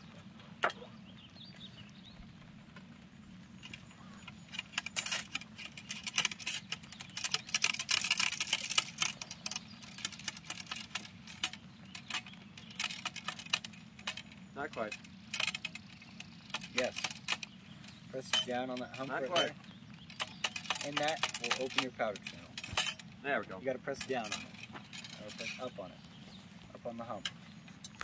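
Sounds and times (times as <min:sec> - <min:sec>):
small metal parts clicking and jingling: 0:03.6 - 0:25.9.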